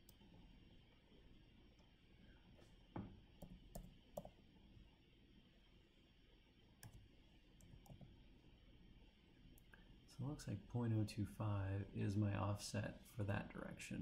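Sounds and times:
mouse and keyboard clicks: 6.8s - 7.0s.

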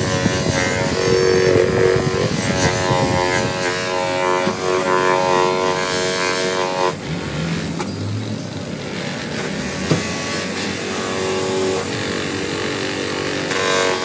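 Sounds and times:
pad rubbing on plastic: 0.0s - 7.8s
bench buffer humming: 0.0s - 14.0s.

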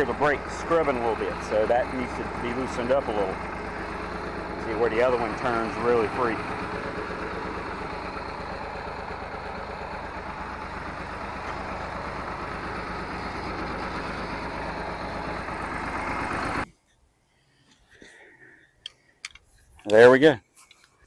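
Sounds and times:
tractor diesel engine running: 0.0s - 16.7s.

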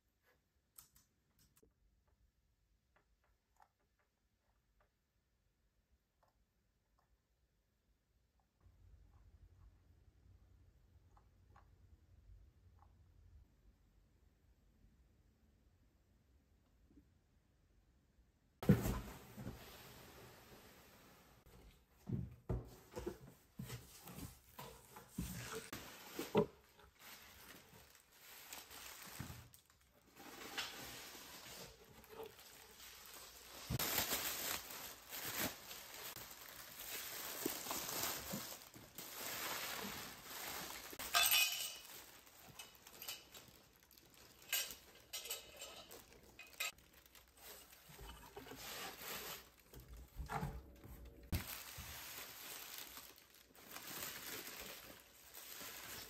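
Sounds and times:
packing paper rustling: 23.6s - 50.2s, 51.3s - 56.0s
ceramic dishes clinking: 41.1s - 41.9s.

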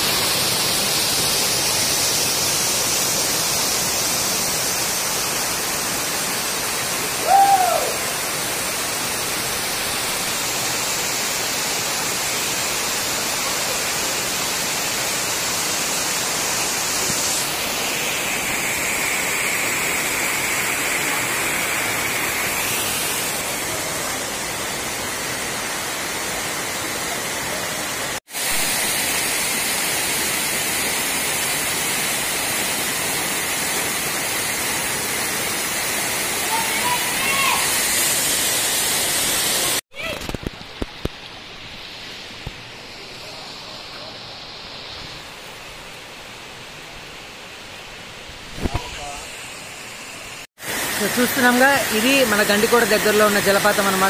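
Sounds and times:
waterfall rushing over rock: 0.0s - 54.0s
short loud rising and falling call: 7.2s - 8.0s.

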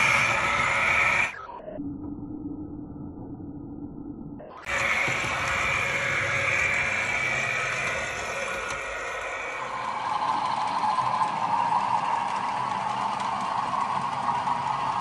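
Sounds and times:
model locomotive motor and wheels running: 0.0s - 1.4s, 4.7s - 15.0s.

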